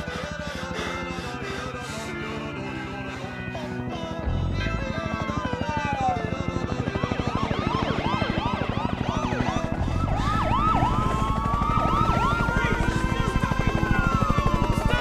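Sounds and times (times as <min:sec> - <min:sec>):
rapid low pulsing: 0:04.1 - 0:15.0
police siren yelping and wailing: 0:04.8 - 0:15.0.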